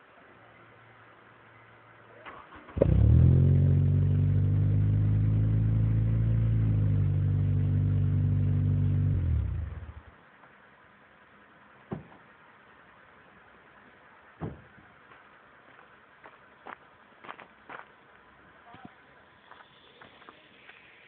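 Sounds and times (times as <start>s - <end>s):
engine cranking: 2.3s - 3.2s
car engine running: 2.8s - 10.1s.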